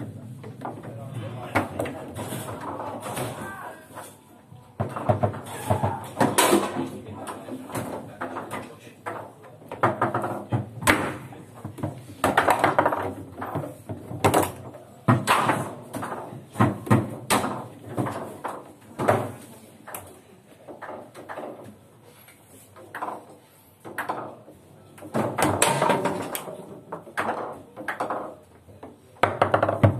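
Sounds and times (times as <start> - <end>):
table football rods banging: 4.8 - 19.4, 25.0 - 28.5, 29.2 - 29.9
table football ball clacking: 29.2 - 29.9.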